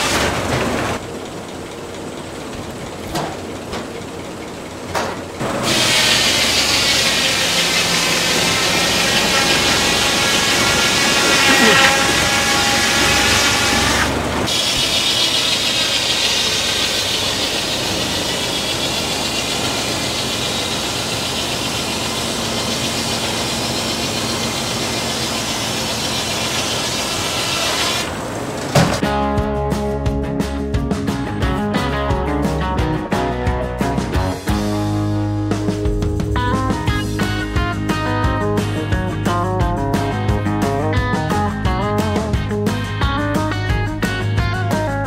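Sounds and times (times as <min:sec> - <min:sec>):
circular saw whining through log: 0:05.4 - 0:28.7.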